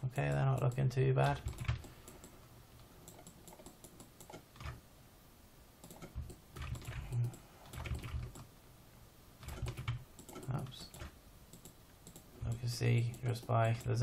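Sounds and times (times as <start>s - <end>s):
keyboard typing: 0.2s - 4.8s, 5.8s - 8.5s, 9.4s - 14.0s
mouse clicks: 9.4s - 14.0s.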